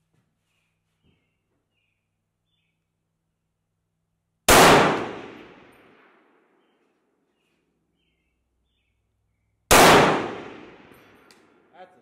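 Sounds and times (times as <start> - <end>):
faint bird chirps: 0.4 - 2.9, 6.6 - 9.6
rifle shot echo: 4.5 - 6.5, 9.7 - 11.2.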